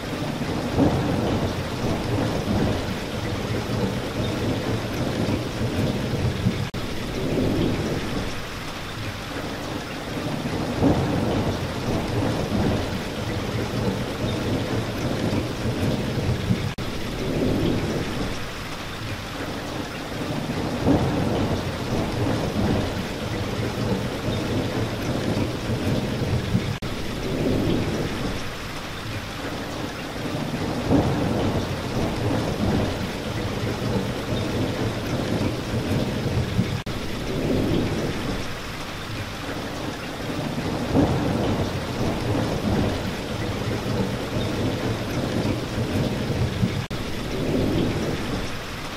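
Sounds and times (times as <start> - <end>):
steady rain: 0.0 - 48.9
thunder rumbling: 0.4 - 8.5, 10.2 - 18.6, 20.2 - 28.6, 30.3 - 38.8, 40.2 - 48.8.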